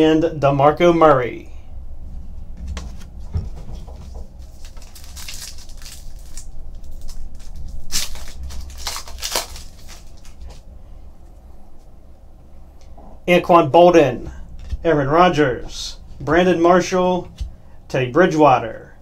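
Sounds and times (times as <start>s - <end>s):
pack wrapper tearing and crinkling: 4.4s - 10.6s.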